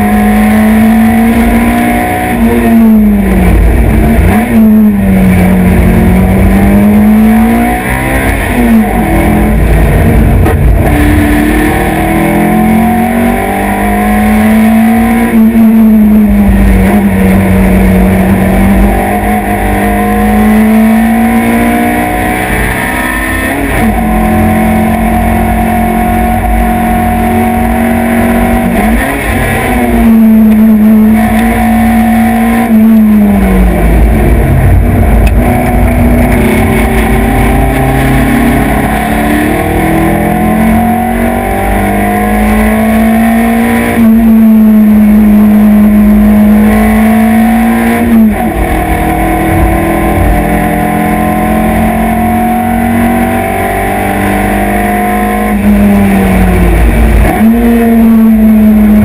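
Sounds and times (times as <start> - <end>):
race car engine revving: 0.0 - 59.0
road and wind noise: 0.0 - 59.0.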